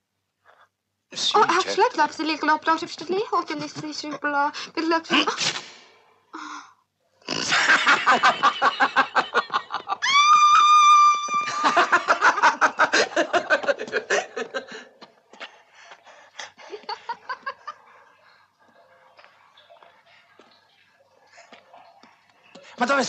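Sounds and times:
high-pitched rapid laughter: 9.8 - 12.8
long held shriek: 10.0 - 11.7.

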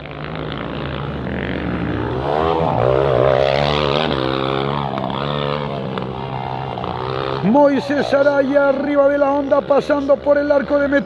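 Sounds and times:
motocross bike engine revving: 0.0 - 11.0.

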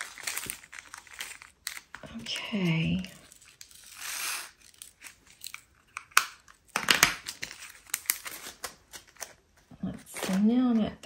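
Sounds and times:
plastic bag rustling: 0.0 - 5.8
plastic beads clicking and rattling: 0.0 - 9.1.

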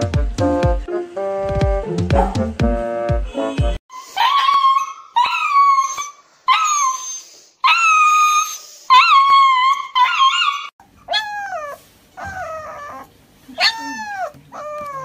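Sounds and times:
piano music: 0.0 - 3.8
dog howling and crying: 4.0 - 15.0.

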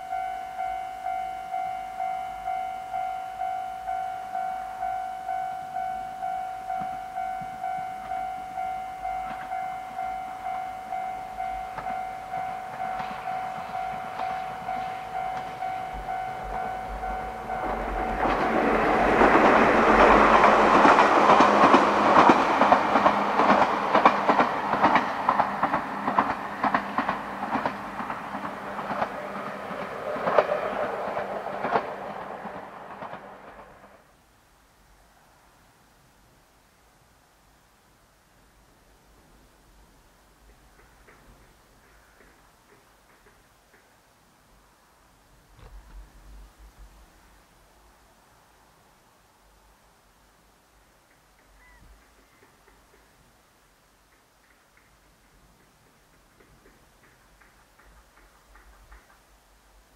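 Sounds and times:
level-crossing warning bell: 0.0 - 30.5
train wheels clattering over rail joints: 11.4 - 34.0, 40.4 - 44.0, 54.0 - 59.9.

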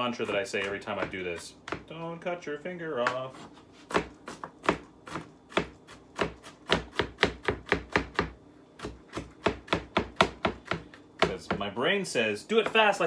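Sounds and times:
knife chopping on wooden board: 0.1 - 2.0, 3.8 - 11.7.

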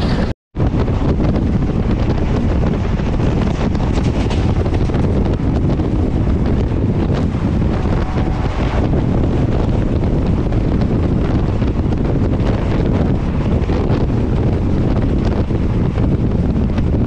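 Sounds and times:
moving train rumble: 0.0 - 17.0
wind buffeting microphone: 0.0 - 17.0.

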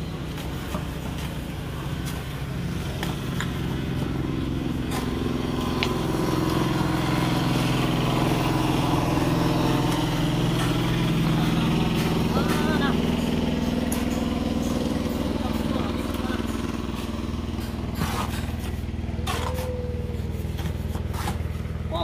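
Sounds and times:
vehicle engine running: 0.0 - 22.0
shovels scraping wet concrete: 4.7 - 6.6, 9.9 - 14.1, 16.9 - 22.0.

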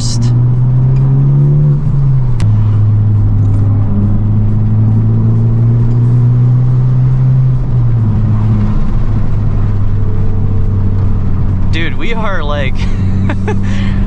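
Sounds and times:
car engine accelerating: 0.0 - 14.0.

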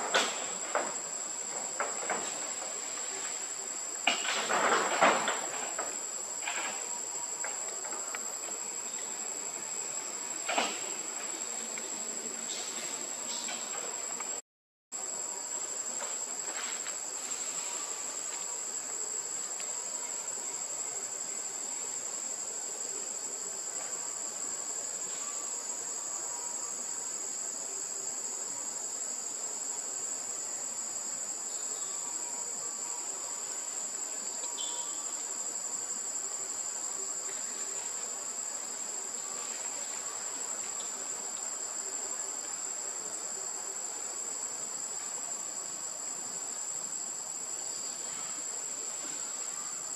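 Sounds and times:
insects shrilling: 16.4 - 22.0.

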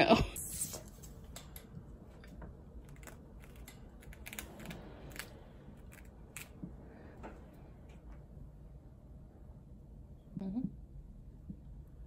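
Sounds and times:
chinchilla gnawing: 1.2 - 7.0.

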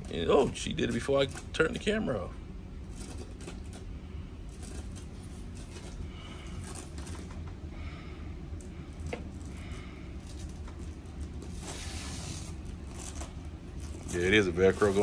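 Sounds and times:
low room hum: 0.0 - 15.0
rustling of couch upholstery: 10.9 - 15.0.

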